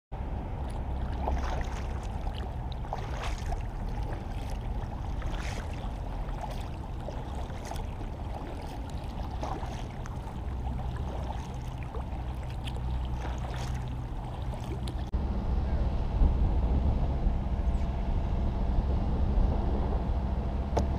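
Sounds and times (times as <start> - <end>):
steady low rumble: 0.2 - 20.9
paddle splashing in water: 0.4 - 15.1.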